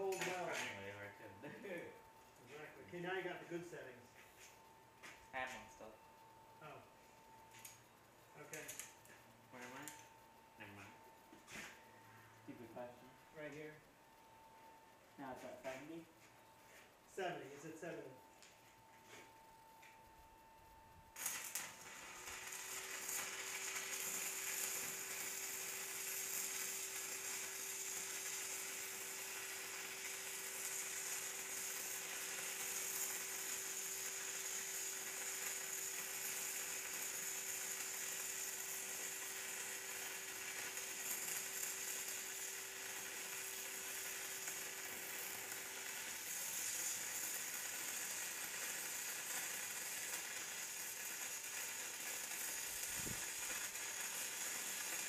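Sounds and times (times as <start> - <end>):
faint steady hum: 0.0 - 48.6
welding arc crackling sizzle: 0.0 - 55.0.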